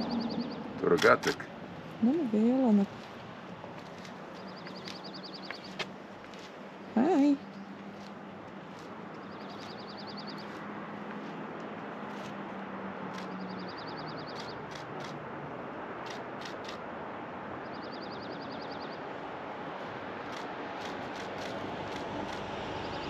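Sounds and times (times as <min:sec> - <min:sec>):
songbird trilling: 0:00.0 - 0:00.6, 0:04.4 - 0:05.8, 0:09.2 - 0:10.6, 0:13.2 - 0:14.7
rushing background noise: 0:00.0 - 0:23.0.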